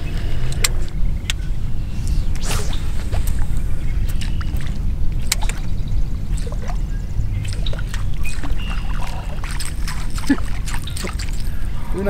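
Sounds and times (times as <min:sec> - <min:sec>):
steady low rumble: 0:00.0 - 0:12.0
waves lapping against boat hull: 0:04.0 - 0:12.0.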